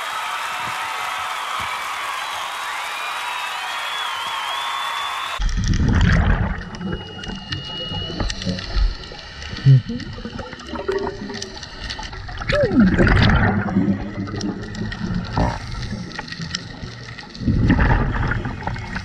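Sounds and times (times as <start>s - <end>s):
exhaled bubbles: 5.4s - 19.0s.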